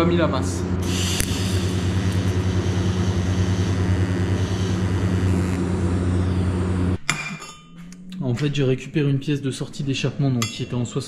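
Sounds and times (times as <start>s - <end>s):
welding arc humming and hissing: 0.0s - 7.0s.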